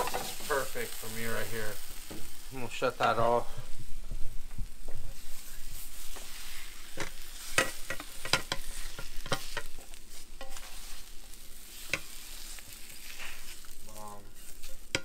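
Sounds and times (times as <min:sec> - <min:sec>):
omelet sizzling in frying pan: 0:00.0 - 0:15.0
utensil scraping and knocking pan: 0:06.0 - 0:11.1, 0:11.7 - 0:15.0.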